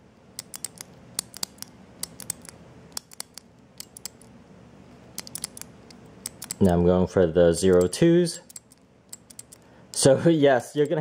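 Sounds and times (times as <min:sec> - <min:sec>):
combination lock dials clicking: 0:00.3 - 0:04.3, 0:05.1 - 0:06.8, 0:07.6 - 0:10.1.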